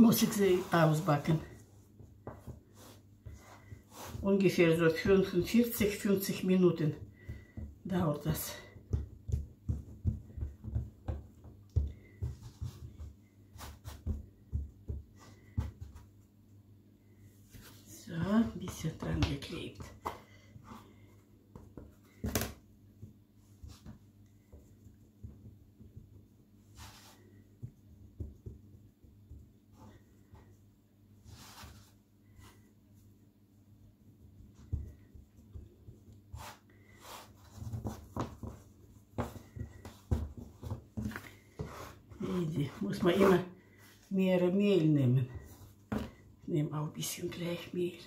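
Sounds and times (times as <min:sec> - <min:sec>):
dough thump: 0:00.0 - 0:16.1, 0:27.6 - 0:30.0
hands patting dough: 0:00.0 - 0:44.5.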